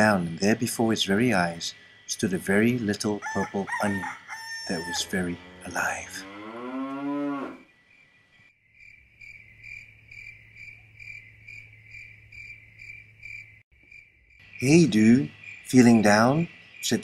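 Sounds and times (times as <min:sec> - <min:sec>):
crickets chirping: 0:00.0 - 0:17.0
cow mooing: 0:04.3 - 0:07.6.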